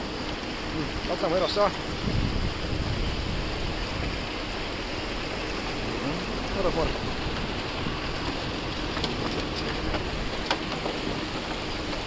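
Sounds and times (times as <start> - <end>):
river water rushing along ferry: 0.0 - 12.0.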